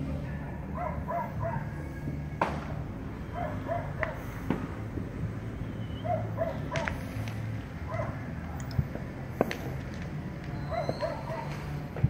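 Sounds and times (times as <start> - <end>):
low city hum: 0.0 - 12.0
dog barking: 0.8 - 1.7, 3.3 - 4.2, 6.0 - 6.9, 7.9 - 8.3, 10.7 - 11.5.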